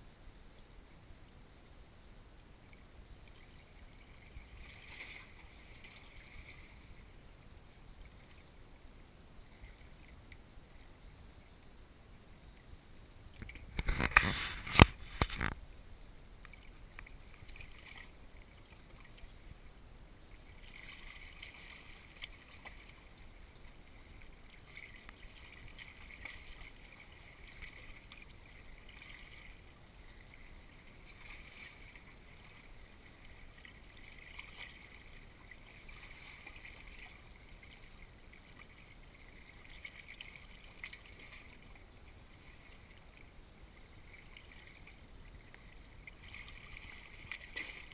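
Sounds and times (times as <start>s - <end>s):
sea lapping against rocks: 20.4s - 41.8s, 44.0s - 47.9s.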